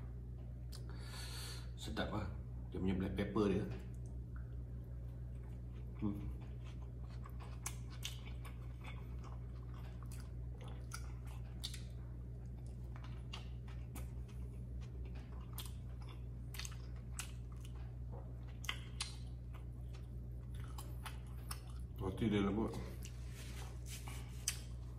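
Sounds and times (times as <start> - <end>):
steady low hum: 0.0 - 24.9
wet chewing: 5.2 - 22.0, 22.9 - 24.9.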